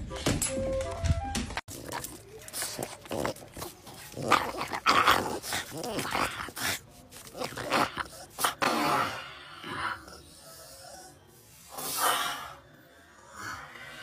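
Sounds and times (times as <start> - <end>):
dog vocalizing: 1.7 - 11.2.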